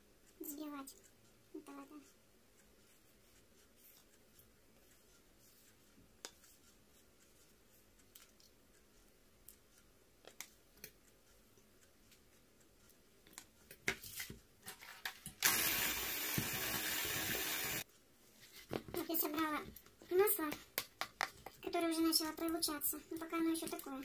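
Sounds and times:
electric hand mixer running: 15.4 - 17.8.

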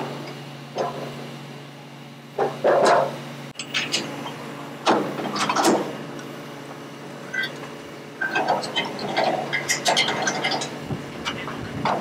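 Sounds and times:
knocks and scrapes of wood and metal: 2.4 - 4.1.

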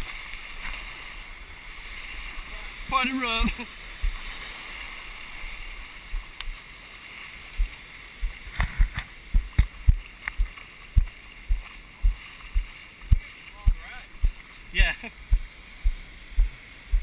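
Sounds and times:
surf washing over sand: 0.0 - 17.0
wind noise: 7.5 - 17.0.

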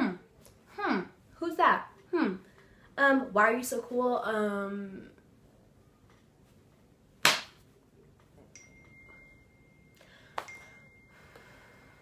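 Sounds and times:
loud sharp smack: 7.2 - 7.6
faint steady high tone: 8.0 - 12.0.

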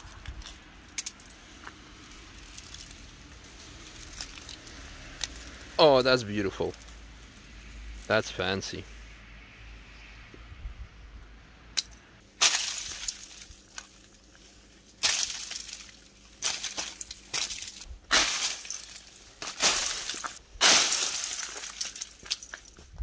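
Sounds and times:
breaking ice tinkling: 3.8 - 5.5, 12.4 - 14.2, 14.9 - 22.7
ice cracking sharply: 12.4 - 13.7, 15.0 - 22.6.

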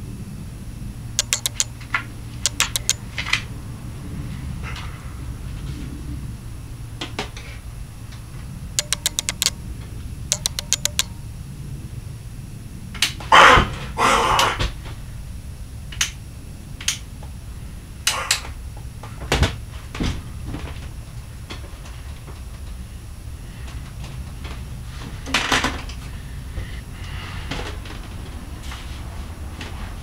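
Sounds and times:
rapid clicking: 1.2 - 1.7, 2.4 - 3.0, 8.8 - 9.6, 10.3 - 11.2
steady low hum: 7.6 - 13.1
objects knocking and rattling: 8.8 - 9.6.

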